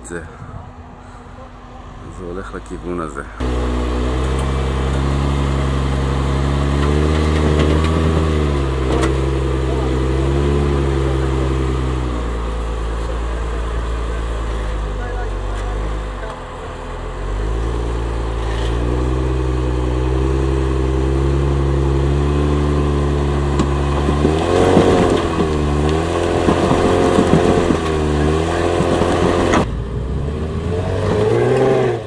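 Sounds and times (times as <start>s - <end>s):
off-road vehicle engine revving: 0.0s - 32.0s.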